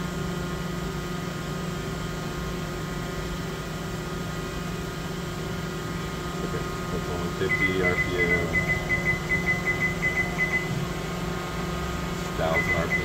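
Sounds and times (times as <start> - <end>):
machine hum and whine: 0.0 - 13.0.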